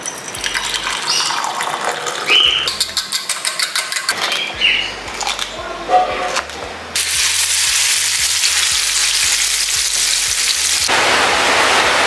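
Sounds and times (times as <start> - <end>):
fish sizzling in hot oil: 7.0 - 10.9.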